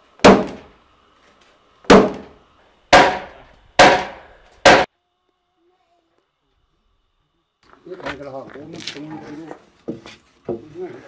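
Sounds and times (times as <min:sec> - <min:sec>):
hatchet striking wooden beam: 0:00.2 - 0:00.7, 0:01.9 - 0:04.9.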